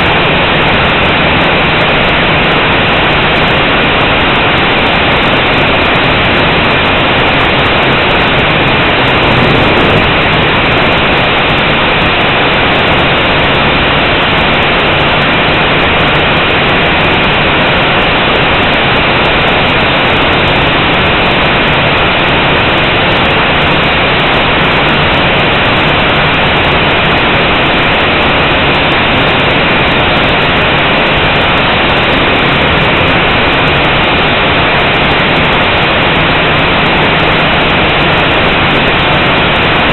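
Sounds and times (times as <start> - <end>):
faint high whine: 0.0 - 39.9
drone propellers whirring: 0.1 - 19.0.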